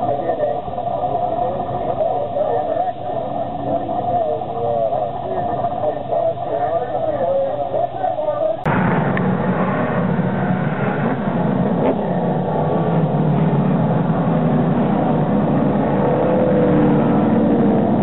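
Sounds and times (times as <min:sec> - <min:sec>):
stock cars racing past: 0:08.7 - 0:18.0.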